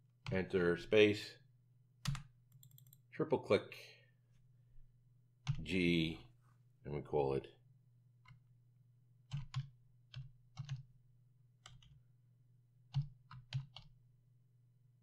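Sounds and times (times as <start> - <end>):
computer keyboard typing: 2.0 - 3.0, 9.3 - 10.9, 11.6 - 12.0, 12.9 - 13.9.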